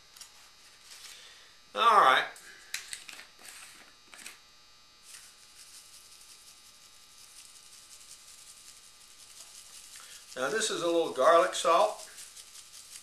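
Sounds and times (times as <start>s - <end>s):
salt shaker rattling: 5.0s - 13.0s.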